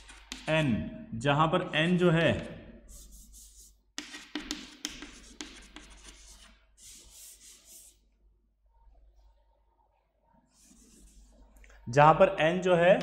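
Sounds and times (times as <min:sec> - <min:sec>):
chalk scratching on chalkboard: 0:00.0 - 0:00.6, 0:02.8 - 0:08.1, 0:10.5 - 0:11.6
chalk rubbed off board: 0:02.9 - 0:08.1, 0:10.5 - 0:11.5.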